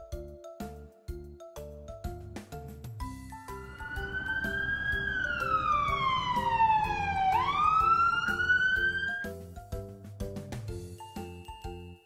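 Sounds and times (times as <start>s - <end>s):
light background music: 0.0s - 12.0s
emergency siren wailing: 3.3s - 9.3s.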